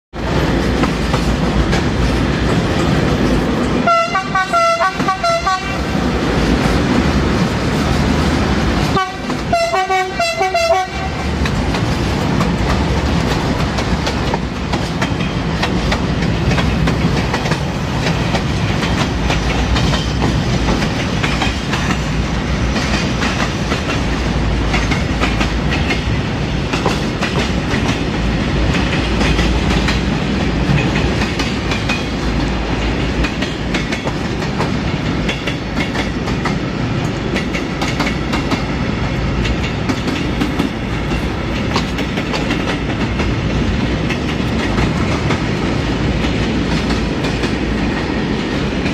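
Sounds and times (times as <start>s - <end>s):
freight train rumbling past: 0.1s - 48.9s
wheel clatter on rail joints: 0.2s - 3.9s, 5.8s - 48.9s
train horn toots: 3.8s - 5.8s, 8.9s - 11.3s.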